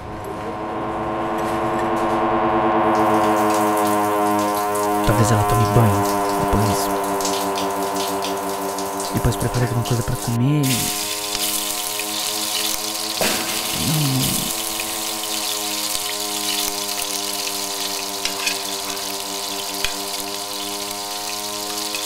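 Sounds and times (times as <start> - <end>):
wavering hum: 0.0 - 12.5
droning music chord: 0.0 - 13.7, 14.5 - 22.0
running water hiss: 3.0 - 22.0.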